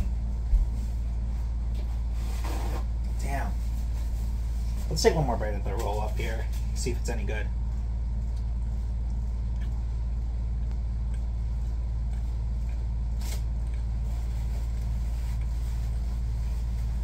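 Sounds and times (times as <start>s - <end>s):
steady low hum: 0.0s - 17.0s
faint chewing: 7.6s - 17.0s.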